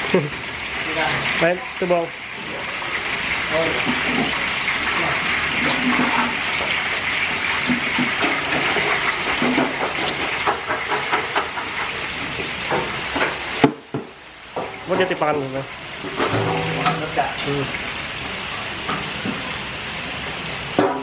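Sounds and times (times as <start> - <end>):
shallots sizzling in oil: 0.0 - 21.0
knocks and clatters: 7.6 - 15.1, 16.1 - 17.2.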